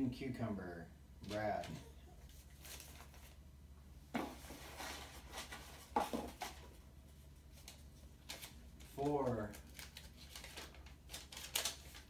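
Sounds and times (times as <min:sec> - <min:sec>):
paper rustling: 0:01.2 - 0:03.4, 0:07.5 - 0:12.0.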